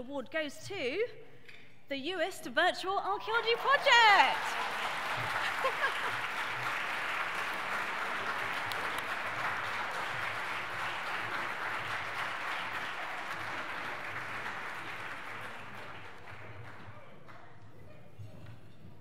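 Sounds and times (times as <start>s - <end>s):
audience applauding: 3.3s - 17.4s.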